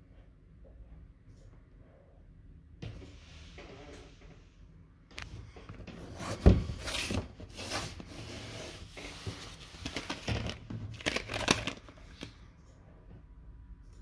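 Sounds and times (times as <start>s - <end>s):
plastic packaging crinkling: 9.8s - 12.4s.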